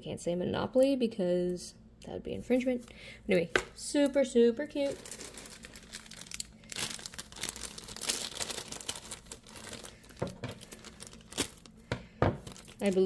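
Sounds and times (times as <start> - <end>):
plastic bag crinkling: 4.6 - 13.0.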